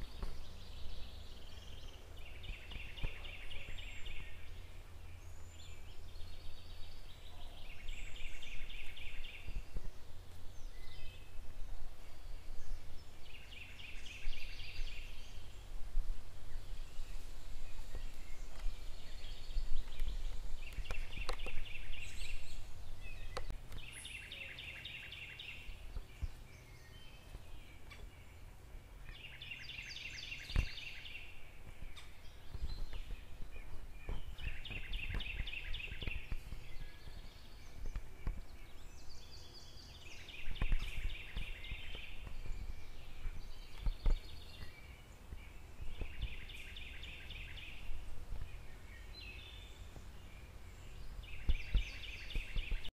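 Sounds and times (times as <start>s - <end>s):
steady low rumble: 0.0s - 24.3s.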